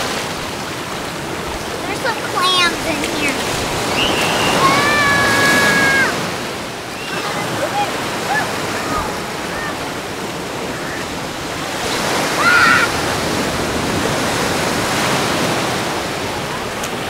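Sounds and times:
small waves breaking: 0.0s - 17.0s.

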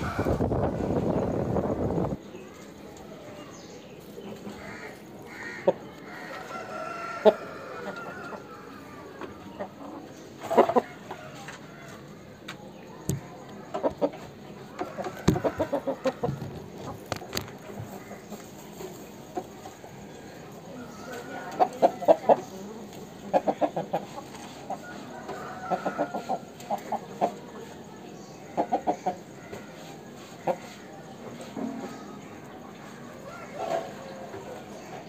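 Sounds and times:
chickens clucking: 0.0s - 35.0s
rooster crowing: 6.1s - 9.0s.

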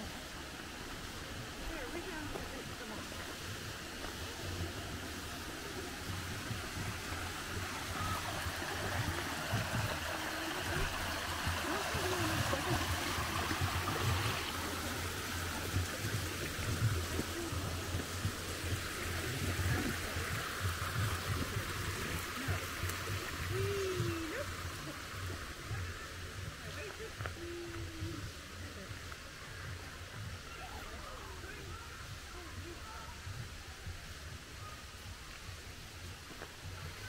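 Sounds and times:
water rushing over weir: 0.0s - 37.0s.

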